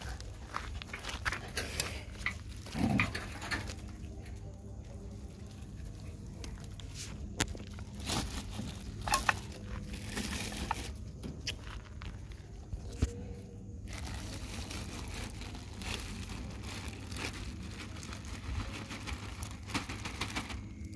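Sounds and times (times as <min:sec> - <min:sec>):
paws scuffing on grit: 0:00.0 - 0:03.2.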